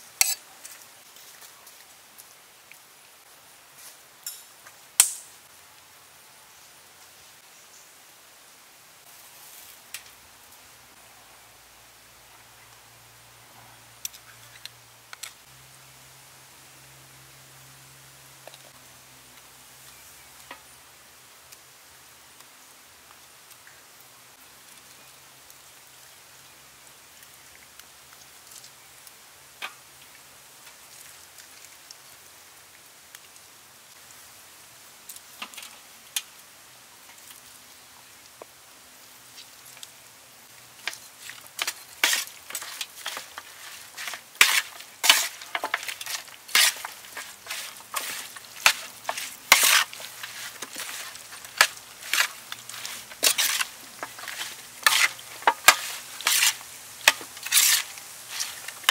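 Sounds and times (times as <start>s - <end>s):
faint hiss: 0.0s - 58.9s.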